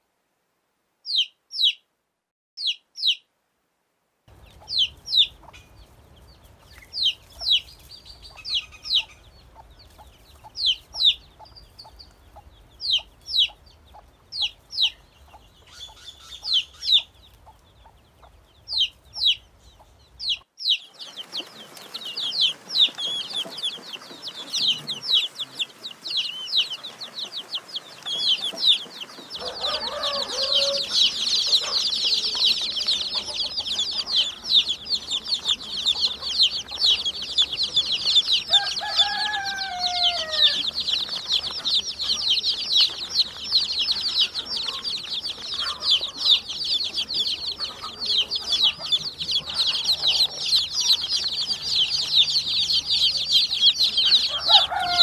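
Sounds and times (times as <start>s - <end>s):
chicks peeping: 1.1s - 1.8s, 2.6s - 3.2s, 4.3s - 55.0s.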